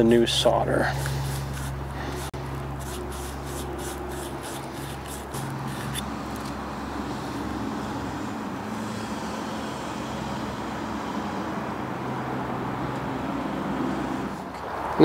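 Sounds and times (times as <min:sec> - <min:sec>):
hiss: 0:07.0 - 0:12.3.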